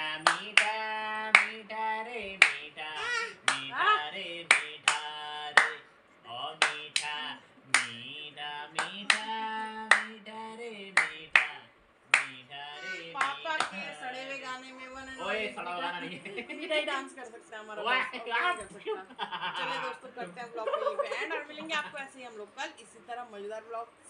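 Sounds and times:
person singing wordless tune: 0.0s - 14.1s
hand claps: 0.2s - 1.6s, 2.4s - 2.7s, 3.5s - 3.7s, 4.5s - 5.8s, 6.6s - 8.1s, 8.8s - 9.3s, 9.9s - 10.2s, 11.0s - 12.4s, 13.2s - 13.8s.

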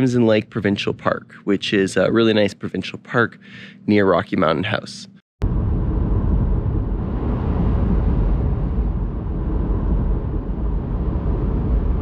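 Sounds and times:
car road and engine rumble: 5.4s - 12.0s.

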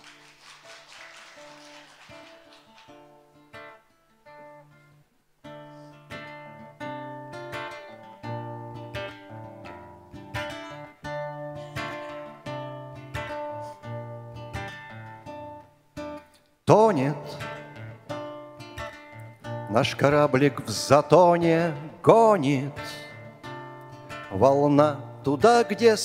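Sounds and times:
acoustic guitar chords: 1.4s - 26.0s.

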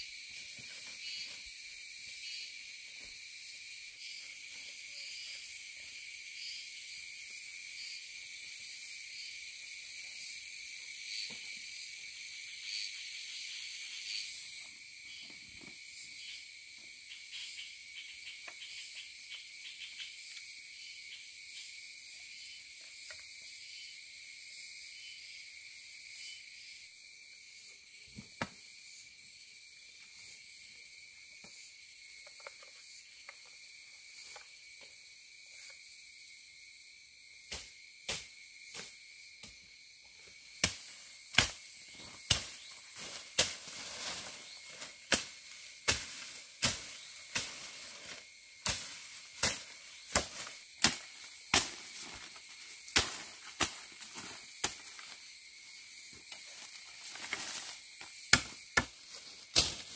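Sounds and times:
insects buzzing: 0.0s - 59.9s
machete chopping: 40.6s - 42.7s, 48.6s - 52.3s, 52.9s - 55.1s, 58.3s - 59.9s.

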